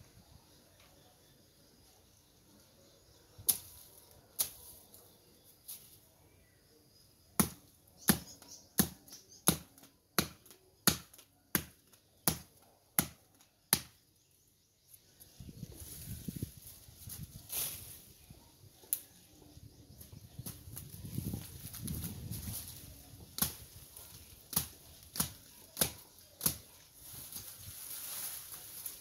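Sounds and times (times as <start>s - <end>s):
stems and leaves rustling: 3.4s - 6.2s, 14.9s - 29.0s
blade chopping stems: 23.2s - 26.8s.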